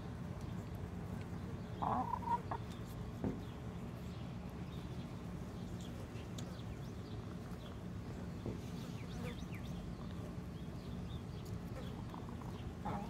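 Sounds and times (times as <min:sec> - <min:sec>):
hen calling: 0:01.8 - 0:02.6, 0:11.8 - 0:13.0.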